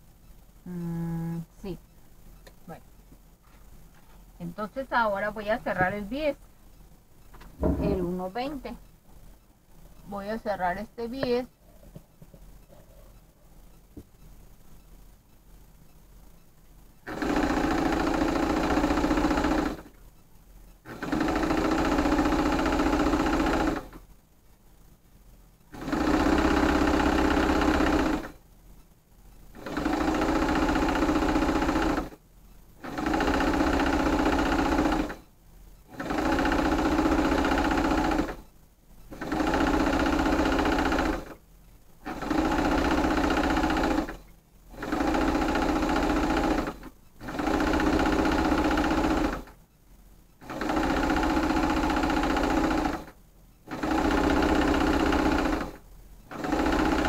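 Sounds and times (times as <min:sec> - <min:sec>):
sewing machine stitching: 0:17.0 - 0:19.9, 0:20.9 - 0:24.0, 0:25.7 - 0:28.4, 0:29.5 - 0:32.2, 0:32.8 - 0:35.2, 0:35.9 - 0:38.4, 0:39.1 - 0:41.4, 0:42.0 - 0:49.6, 0:50.4 - 0:57.0.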